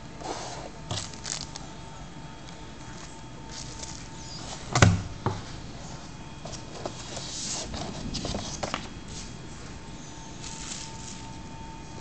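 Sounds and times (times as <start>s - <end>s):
paper rustling: 0.2s - 1.7s, 2.8s - 4.7s, 10.4s - 11.4s.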